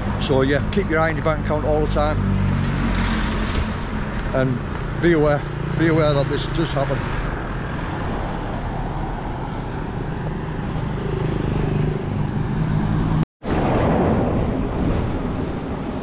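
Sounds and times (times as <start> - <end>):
vehicle engine hum passing: 0.0 - 13.2
steady traffic noise: 0.0 - 16.0.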